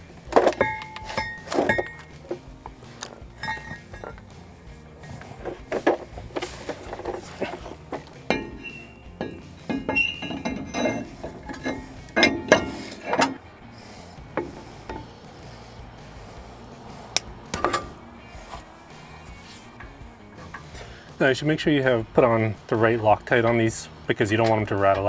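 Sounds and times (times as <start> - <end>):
metal clinks and knocks: 0.0 - 13.5, 14.3 - 15.2, 17.5 - 20.9.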